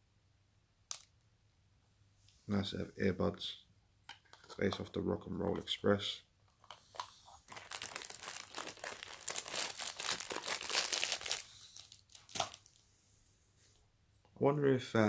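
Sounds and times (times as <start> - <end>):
packaging crinkling: 6.6 - 12.8.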